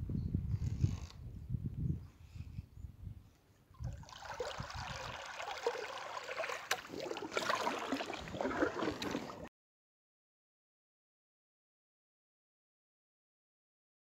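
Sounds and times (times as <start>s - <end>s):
paddle splashing water: 3.8s - 9.5s
water dripping: 3.8s - 9.5s.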